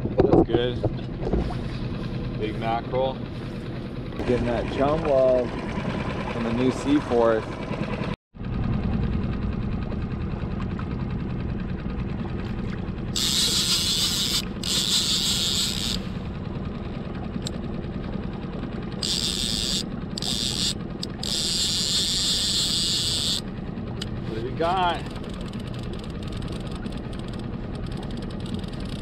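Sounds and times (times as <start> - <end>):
outboard motor running: 0.0 - 29.0
fishing reel drag hissing: 13.2 - 16.2, 19.0 - 23.5.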